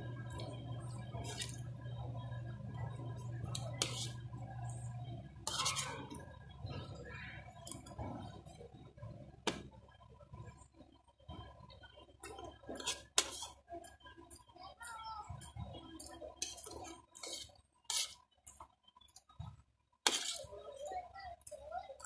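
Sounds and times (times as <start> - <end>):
metal spoon scraping ceramic plate: 3.5 - 4.2, 5.4 - 6.1, 16.4 - 18.2, 20.1 - 20.4.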